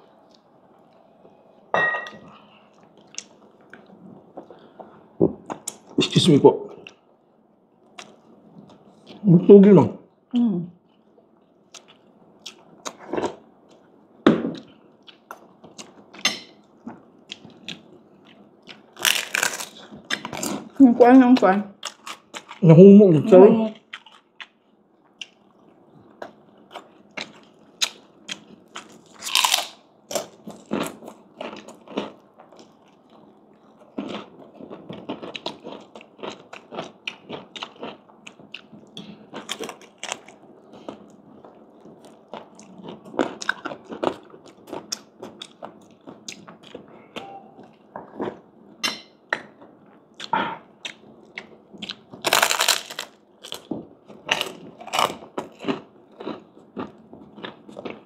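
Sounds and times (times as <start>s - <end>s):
crunchy chewing: 16.9s - 20.7s, 23.8s - 46.9s, 49.6s - 58.0s.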